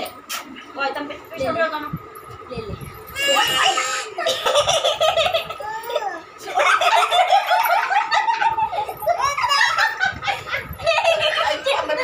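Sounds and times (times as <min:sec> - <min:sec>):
people laughing: 0:04.2 - 0:05.6, 0:06.4 - 0:12.0.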